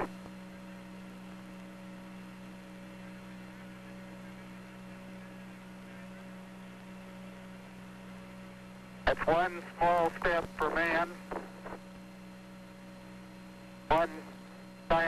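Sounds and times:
faint steady tones: 0:00.0 - 0:15.0
low electrical hum: 0:00.0 - 0:15.0.

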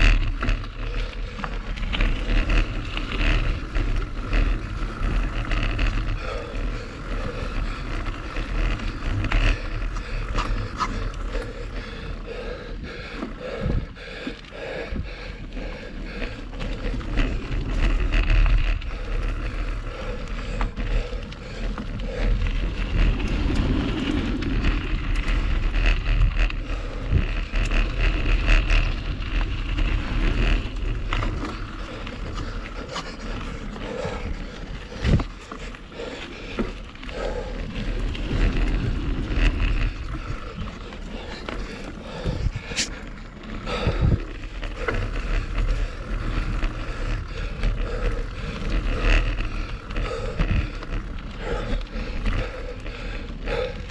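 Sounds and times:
bike clicks and rattles: 0:00.0 - 0:53.9
tyres rolling over dirt: 0:00.0 - 0:53.9
wind rushing over microphone: 0:00.0 - 0:53.9.

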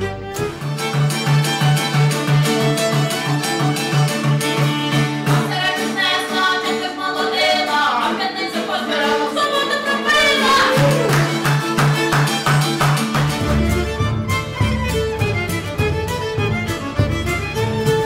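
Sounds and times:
fiddle: 0:00.0 - 0:18.0
person singing: 0:05.5 - 0:11.5.

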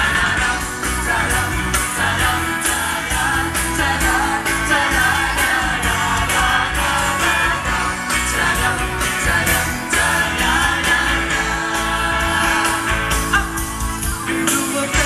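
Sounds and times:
drum kit beat: 0:00.0 - 0:15.0
men singing into microphones: 0:00.0 - 0:15.0
pop band playing: 0:00.0 - 0:15.0.

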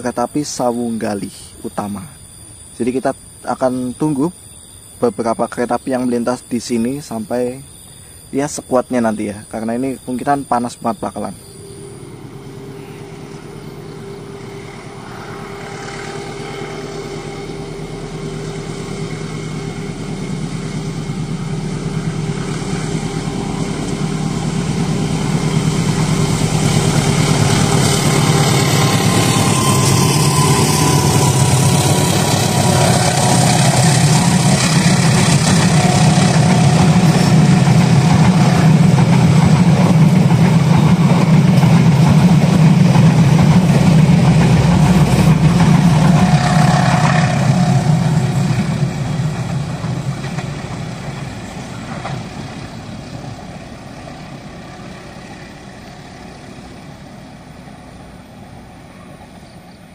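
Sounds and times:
diesel locomotive engine drone: 0:00.0 - 0:59.9.

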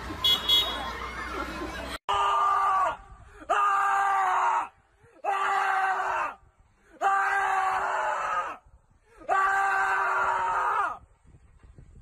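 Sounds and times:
loud screams: 0:02.1 - 0:08.6, 0:09.2 - 0:11.0.

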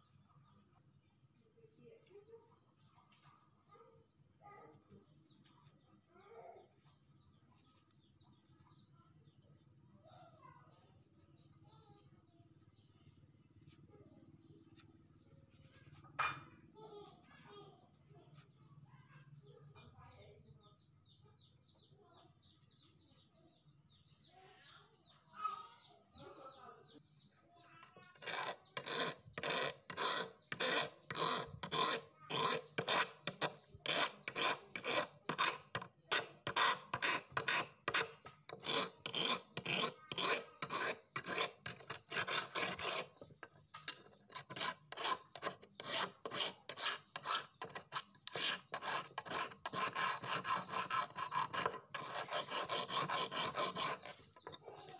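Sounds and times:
faint rubbing: 0:27.8 - 0:54.9
hand file rasping on knife blade: 0:27.8 - 0:54.9.

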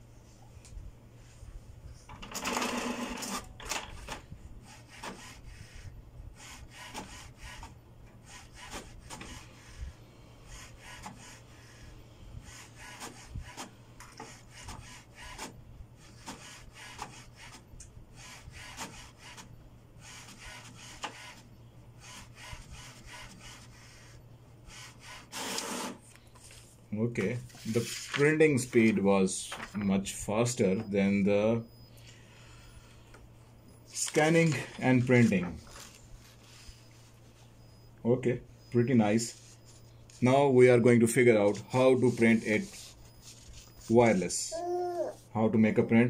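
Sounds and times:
printer mechanical whir: 0:02.0 - 0:26.6, 0:27.6 - 0:44.3.

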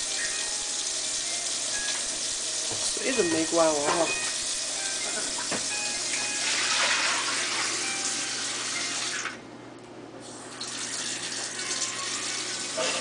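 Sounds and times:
water running from tap: 0:00.0 - 0:09.4, 0:10.2 - 0:13.0.

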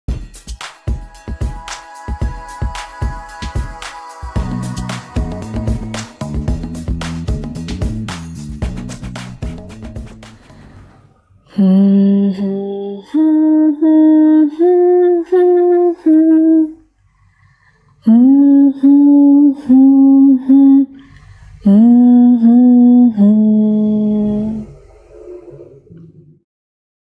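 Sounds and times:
person humming a slow tune: 0:00.9 - 0:06.4, 0:11.5 - 0:16.8, 0:18.0 - 0:26.0.

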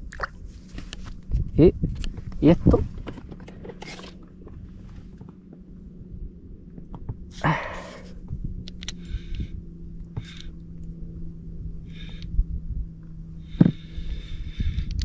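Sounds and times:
steady low hum: 0:00.0 - 0:15.0
small clicks: 0:08.6 - 0:09.4.

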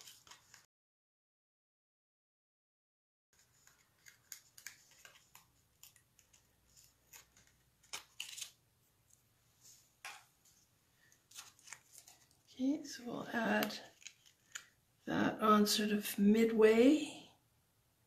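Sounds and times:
cardstock clicks and rustles: 0:00.0 - 0:00.6, 0:03.4 - 0:08.6, 0:11.1 - 0:12.5, 0:13.4 - 0:14.8.

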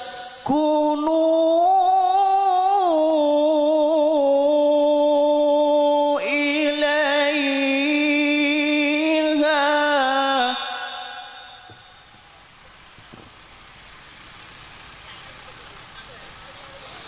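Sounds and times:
man reciting melodically: 0:00.0 - 0:12.2.

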